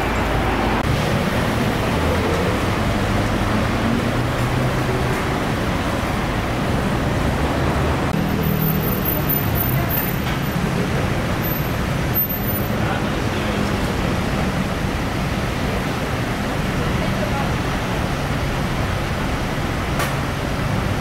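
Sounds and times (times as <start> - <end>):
road traffic: 0.0 - 21.0.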